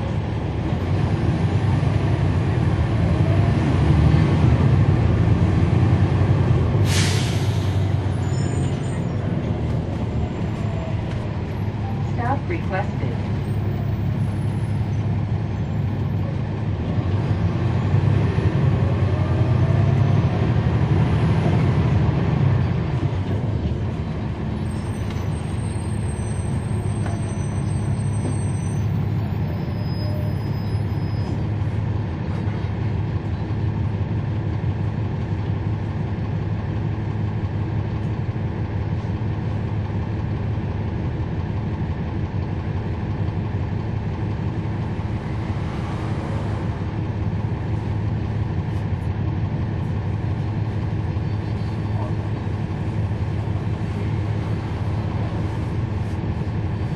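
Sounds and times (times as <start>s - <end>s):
bus diesel engine: 0.0s - 56.9s.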